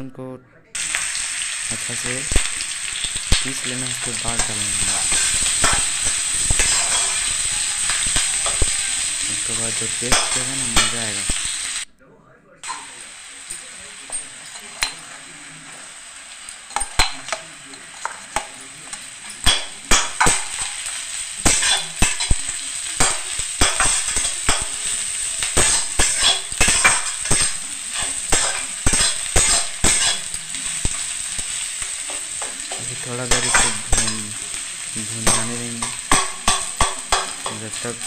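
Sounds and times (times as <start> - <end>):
onions sizzling in hot oil: 0.8 - 11.9, 12.6 - 38.0
spatula scraping and knocking pan: 2.3 - 9.2, 16.6 - 34.4, 35.2 - 38.0.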